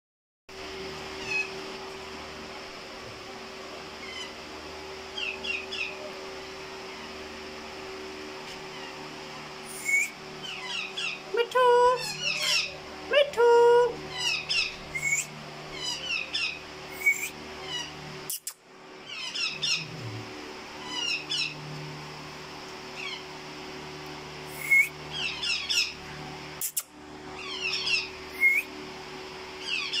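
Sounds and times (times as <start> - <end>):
parrots chirping: 1.1 - 1.6, 4.0 - 4.4, 5.2 - 6.0, 8.7 - 9.0, 9.6 - 11.3, 11.9 - 12.9, 14.1 - 20.0, 20.8 - 21.6, 23.0 - 23.2, 24.5 - 26.0, 26.6 - 28.7, 29.6 - 30.0
parrot squawk: 1.2 - 1.6, 4.0 - 4.4, 12.0 - 12.8, 14.1 - 19.9, 20.8 - 21.6, 24.6 - 26.0, 27.4 - 28.6, 29.6 - 30.0.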